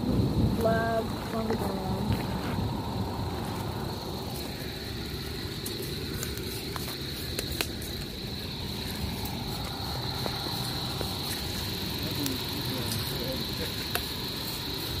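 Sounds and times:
low rumble: 0.0 - 6.1
insects chirring: 0.0 - 15.0.

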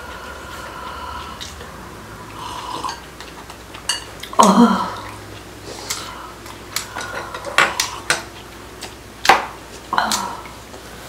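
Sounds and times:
utensils clinking on bowls: 2.6 - 5.2, 6.7 - 8.4.

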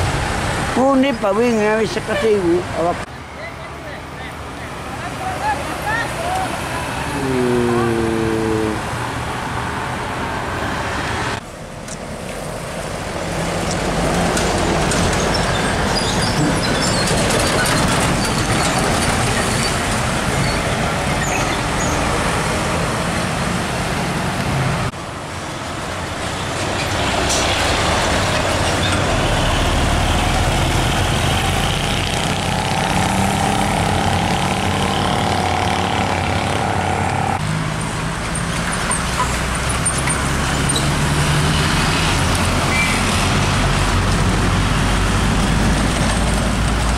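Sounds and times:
road traffic passing: 0.0 - 46.9.

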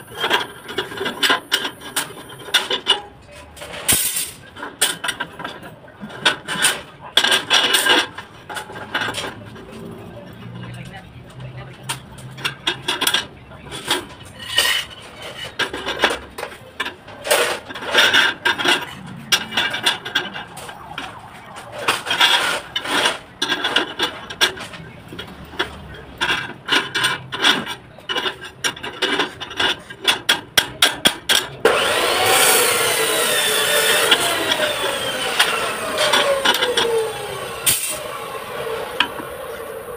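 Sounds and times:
motor-driven tool whine: 31.7 - 39.9.

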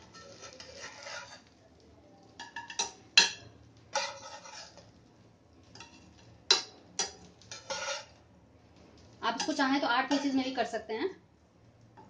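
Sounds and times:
spatula clinking on pan and plate: 0.0 - 1.5, 2.4 - 4.9, 5.7 - 8.2, 9.4 - 10.6.

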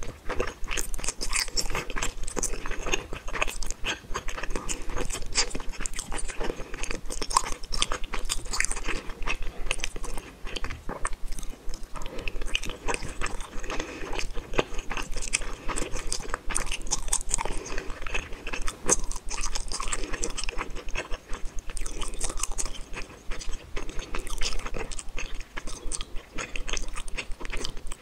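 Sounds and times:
person chewing food: 0.0 - 28.0.

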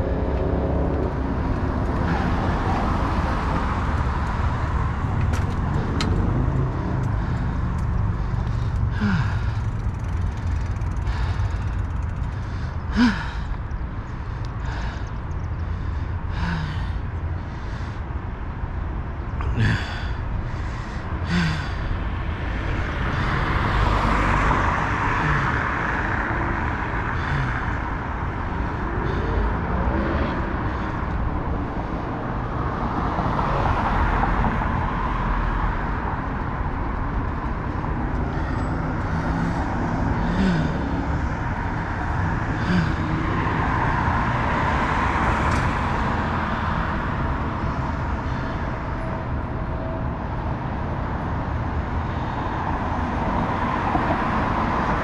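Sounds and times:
cars passing: 0.0 - 55.0
low rumble of traffic: 0.0 - 55.0.

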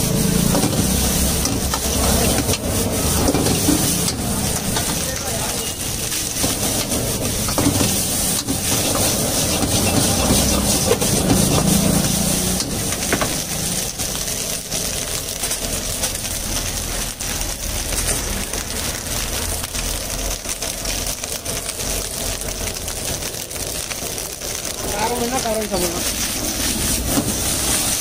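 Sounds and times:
metal ladle scraping wok: 0.0 - 15.0, 15.7 - 19.0, 25.7 - 28.0
gas burner roar: 0.0 - 28.0
rice sizzling in wok: 0.0 - 28.0.

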